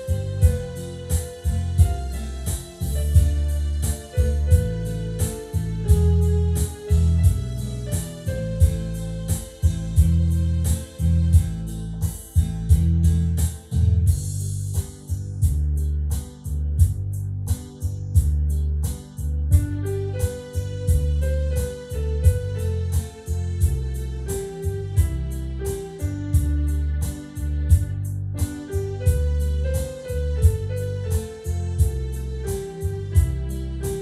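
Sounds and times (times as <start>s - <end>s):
keyboard melody: 0.0s - 34.0s
low sustained bass line: 0.0s - 34.0s
steady electronic beat: 0.0s - 34.0s.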